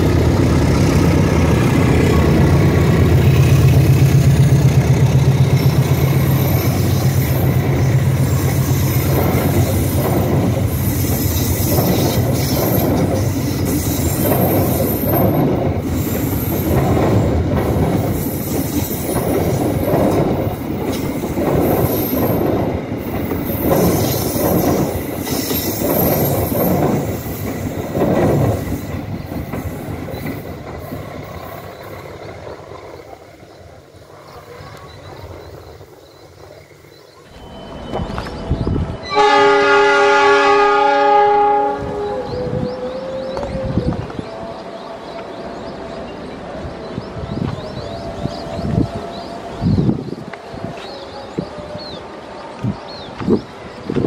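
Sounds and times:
train wheels clacking on rail joints: 0.0s - 33.2s
high wheel squeal: 5.5s - 17.3s, 18.0s - 19.9s, 21.0s - 32.0s.

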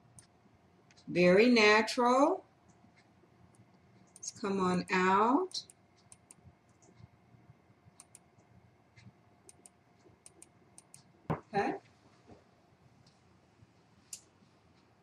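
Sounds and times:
small clicks and ticks: 0.1s - 1.1s, 2.6s - 4.4s, 5.5s - 11.2s
person's voice: 4.2s - 5.6s, 11.4s - 11.8s.

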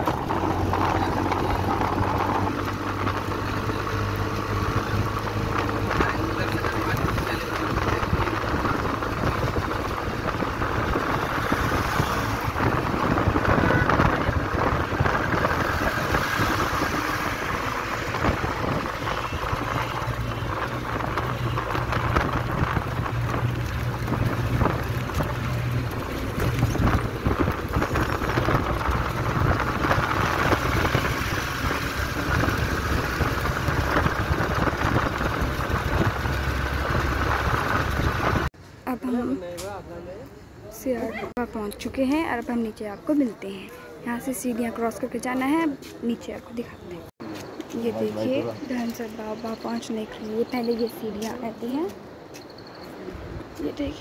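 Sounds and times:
auto-rickshaw engine running: 0.0s - 39.4s, 41.4s - 54.0s
road and wind noise: 0.0s - 54.0s.

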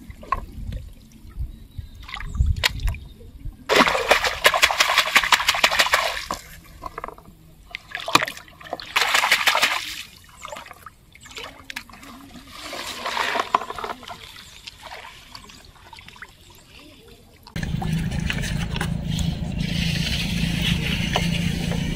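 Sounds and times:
hands splashing in water: 3.7s - 6.4s, 7.9s - 10.1s.

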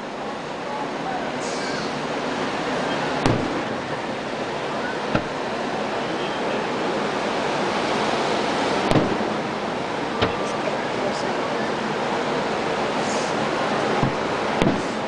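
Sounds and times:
steady rushing background noise: 0.0s - 15.0s
firework shells bursting: 3.2s - 3.8s, 5.0s - 5.6s, 8.8s - 9.5s.

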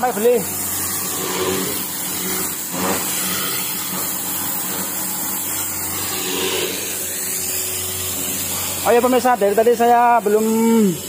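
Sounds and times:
continuous machinery hiss: 0.0s - 11.0s.

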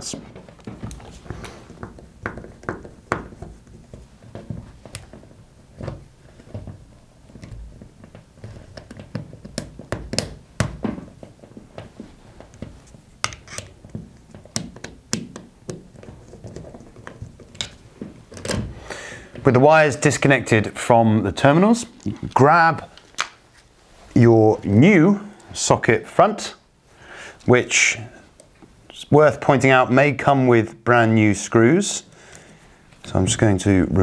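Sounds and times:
screwdriver clicks and scrapes: 13.2s - 13.8s.

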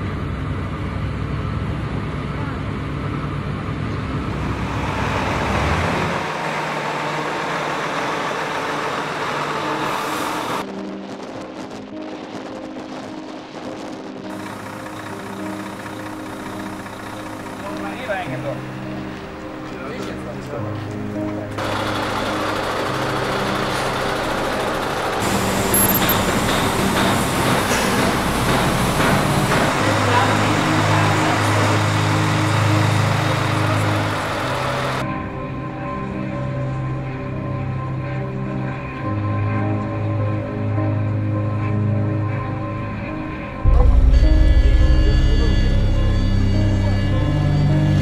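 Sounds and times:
diesel truck engine running: 0.0s - 10.6s, 14.3s - 35.0s
machinery noise: 1.9s - 12.4s, 13.4s - 35.1s
music: 8.7s - 48.0s.

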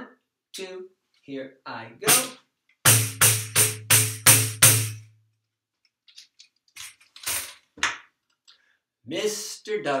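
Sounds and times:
tambourine set down rattling: 6.8s - 7.7s.

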